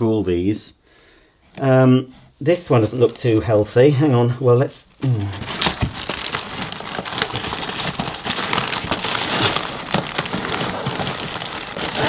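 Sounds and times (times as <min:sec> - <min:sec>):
packing paper rustling: 0:05.0 - 0:12.0.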